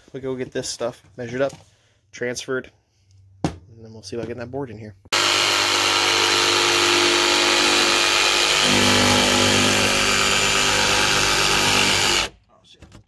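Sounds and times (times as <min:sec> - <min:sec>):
jigsaw cutting plywood: 0:05.1 - 0:12.3.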